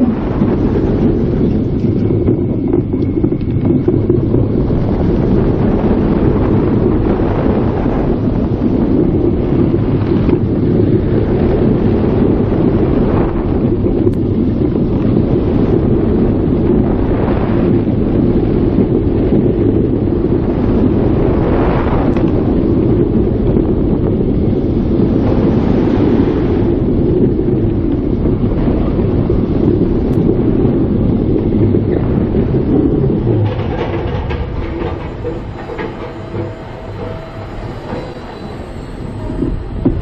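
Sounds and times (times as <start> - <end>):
roller coaster train running: 0.0 - 40.0
wind buffeting microphone: 0.0 - 40.0.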